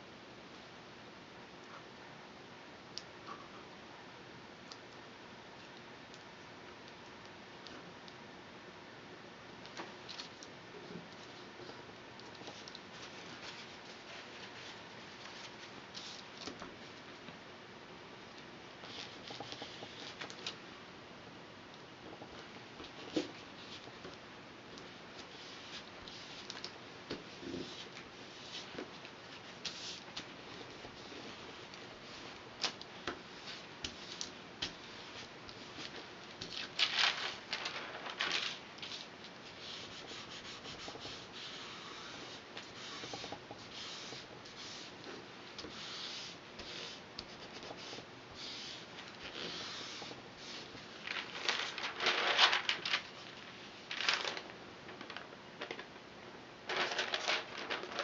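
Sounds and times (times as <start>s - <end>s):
paper rustling: 12.4s - 16.6s, 27.5s - 44.9s, 45.7s - 55.9s, 56.6s - 58.0s.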